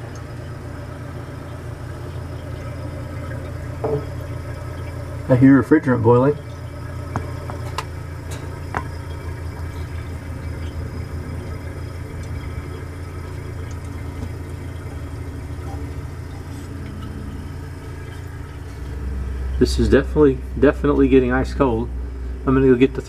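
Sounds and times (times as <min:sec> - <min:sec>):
refrigerant boiling: 0:00.0 - 0:23.0
refrigerator compressor humming: 0:00.0 - 0:23.0.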